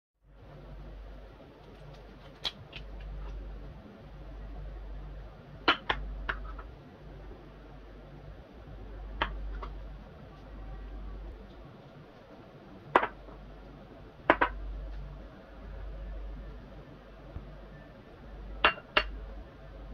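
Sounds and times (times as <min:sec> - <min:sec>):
steady low hum: 0:00.2 - 0:19.9
plates clinking on stone counter: 0:18.6 - 0:19.1.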